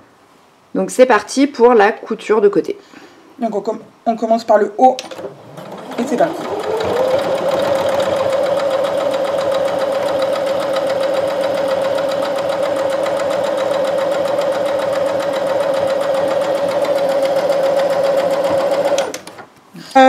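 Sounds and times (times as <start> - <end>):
sewing machine stitching: 5.0 - 19.5.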